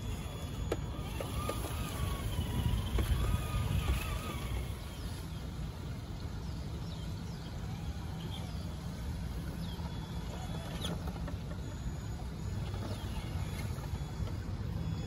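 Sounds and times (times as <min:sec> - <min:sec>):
electric motor humming: 0:00.0 - 0:15.0
birds chirping: 0:00.1 - 0:15.0.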